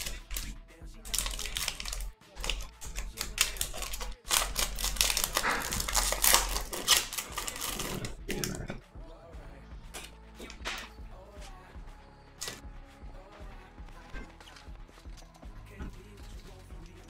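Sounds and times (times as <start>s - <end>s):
foil wrapper crinkling and tearing: 0.0s - 8.2s.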